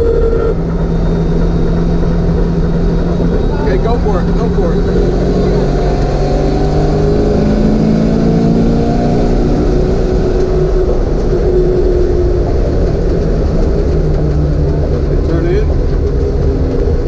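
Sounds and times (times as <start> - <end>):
car engine accelerating: 0.0 - 17.0.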